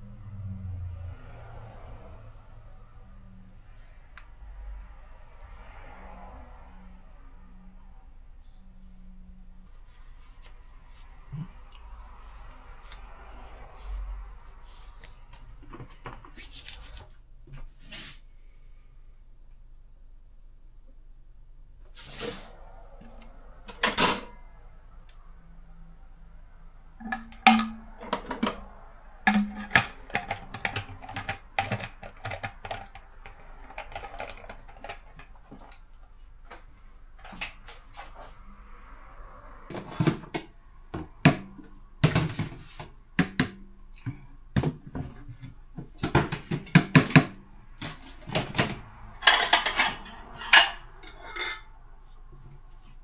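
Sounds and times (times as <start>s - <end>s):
dishes and pans clinking: 48.3s - 51.7s.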